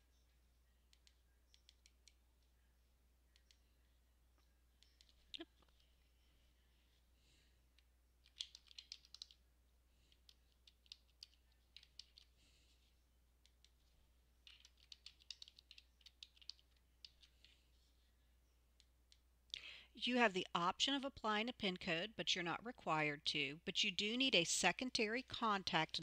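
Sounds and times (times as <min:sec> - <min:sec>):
faint keyboard typing: 0:00.0 - 0:02.7, 0:03.3 - 0:06.1, 0:07.7 - 0:18.0, 0:18.7 - 0:21.1.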